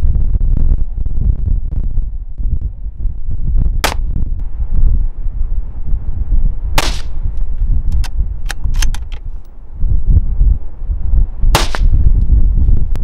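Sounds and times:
wind rumbling on microphone: 0.0 - 13.0
rifle shots: 6.8 - 7.2, 11.6 - 11.9.

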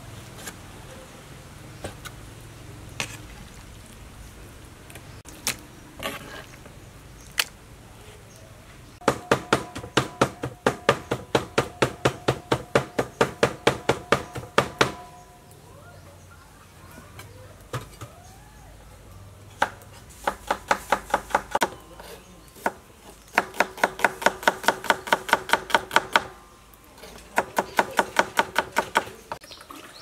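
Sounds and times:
cleaver chopping on wooden board: 22.6 - 26.3.

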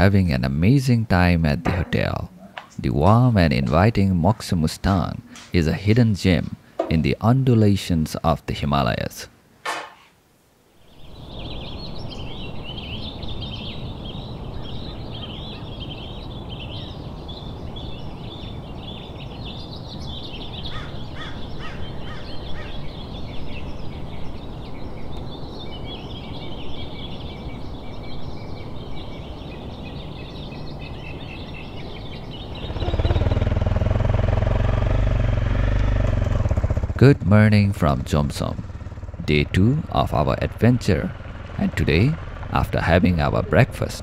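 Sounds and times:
small birds chirping: 0.0 - 9.3, 10.0 - 44.0
low background noise: 0.0 - 44.0
motorcycle engine: 32.0 - 44.0.

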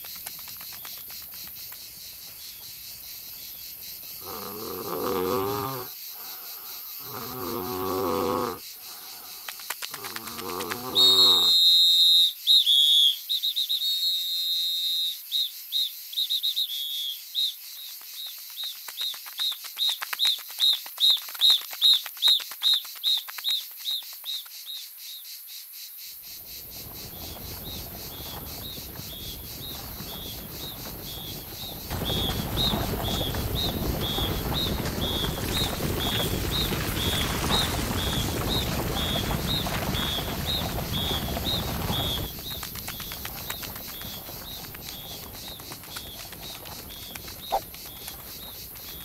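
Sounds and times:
rustling hiss: 26.2 - 49.0.

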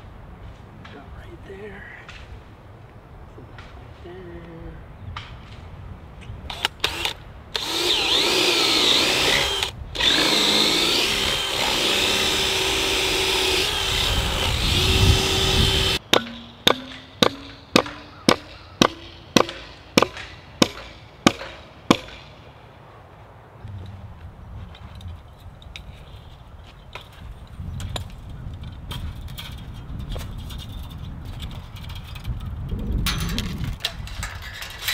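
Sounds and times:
power drill whining: 6.5 - 16.0
sharp knocks: 14.8 - 22.3.

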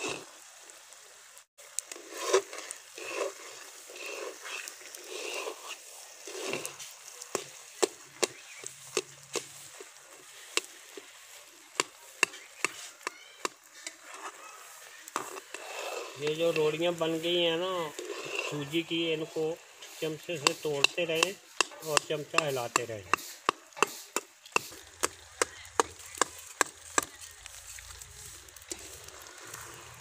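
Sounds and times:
faint hiss: 0.0 - 30.0
spoon scraping metal pan: 15.1 - 27.1.

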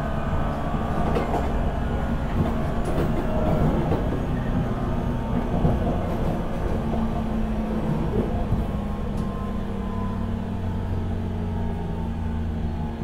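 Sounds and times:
electric train motor hum and whine: 0.0 - 13.0
wheel-on-rail rumble: 0.0 - 13.0
rail joint clicks: 0.4 - 9.4.

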